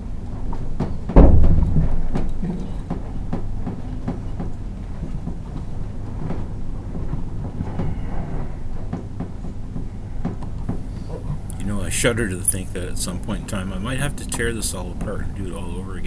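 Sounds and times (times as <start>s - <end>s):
steady low rumble: 0.0s - 16.0s
small clicks and rustles: 0.2s - 11.6s.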